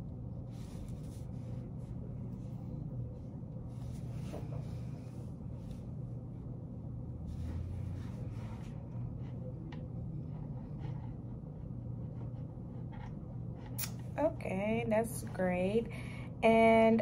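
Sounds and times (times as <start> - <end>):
steady low hum: 0.0 - 17.0
pen scratching on paper: 10.2 - 13.8.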